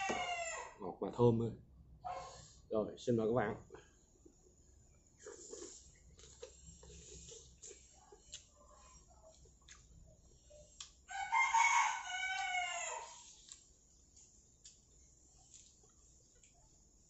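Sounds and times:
rooster crowing: 0.0s - 0.8s, 11.1s - 13.3s.

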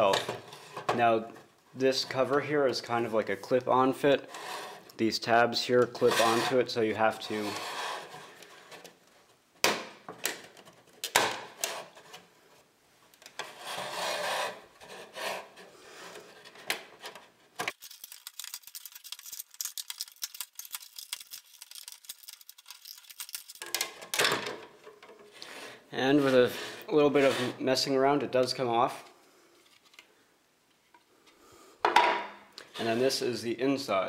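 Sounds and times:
plastic rubbing and scraping: 13.2s - 25.3s.

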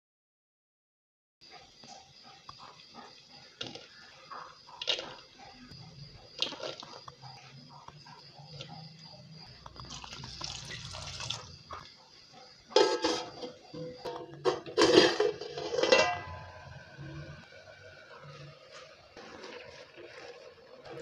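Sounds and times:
water pouring into a clay pot: 9.8s - 11.6s.

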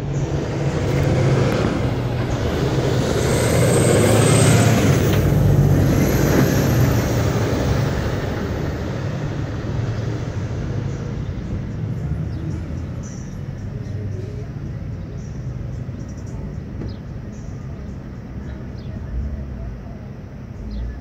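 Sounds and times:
vehicle passing: 0.0s - 16.0s.

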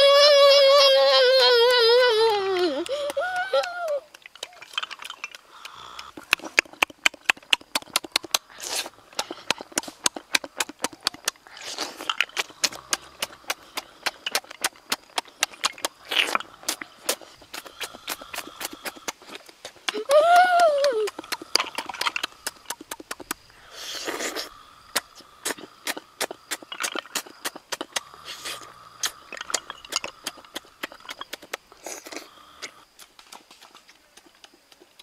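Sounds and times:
wet clicks and smacks: 2.3s - 8.5s, 9.2s - 20.0s, 20.6s - 23.4s, 24.9s - 28.1s
slurping: 4.1s - 20.1s, 21.0s - 33.0s.

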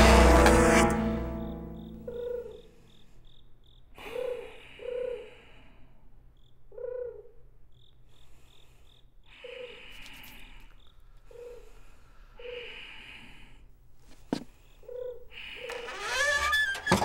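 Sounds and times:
cricket chirping: 0.8s - 5.4s, 6.2s - 11.8s
soft breathy sounds: 8.0s - 15.7s.

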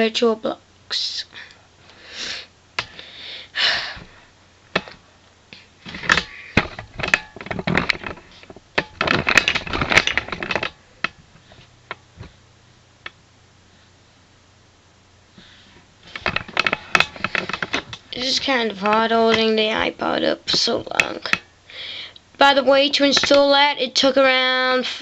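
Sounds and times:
device handling clicks and rustling: 5.8s - 12.3s, 16.1s - 19.5s.

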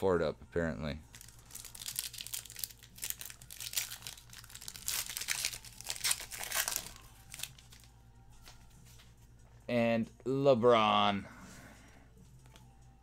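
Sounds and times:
foil wrapper tearing and crinkling: 1.1s - 7.9s.

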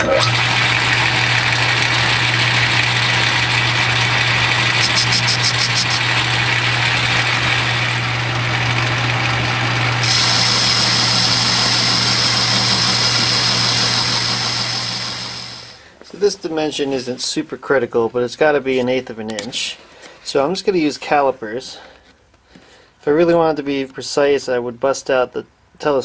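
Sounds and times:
lathe motor humming: 0.0s - 15.8s
metal cutting hiss: 4.8s - 6.1s, 10.0s - 15.8s.

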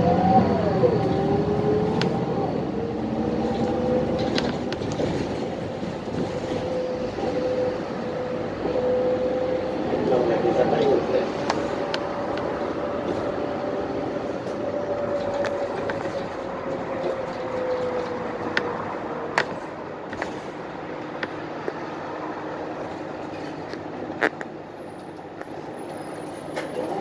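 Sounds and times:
bus engine and road noise: 0.0s - 27.0s.

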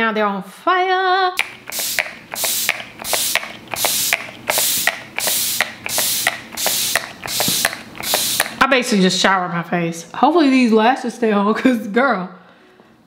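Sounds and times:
spray bottle mist hissing: 1.4s - 8.6s
spray pump clicking: 1.4s - 8.6s.

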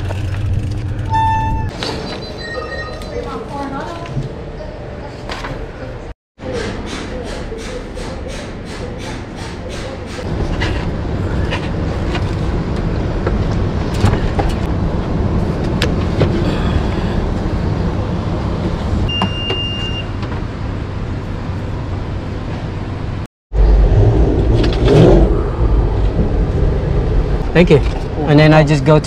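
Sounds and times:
bicycle clicks and knocks: 0.0s - 1.6s
low rumble of vehicles: 0.0s - 2.3s, 10.0s - 29.0s.

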